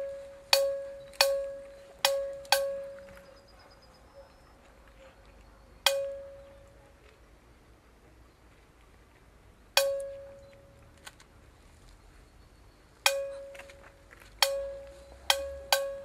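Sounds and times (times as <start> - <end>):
bell ringing: 5.9 - 6.7, 14.4 - 16.0.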